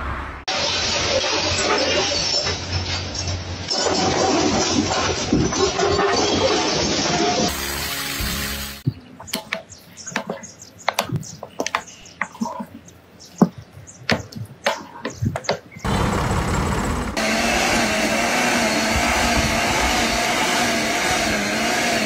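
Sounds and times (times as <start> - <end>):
sharp clicks and taps: 9.2 - 12.3
garden tiller motor running: 15.9 - 22.0.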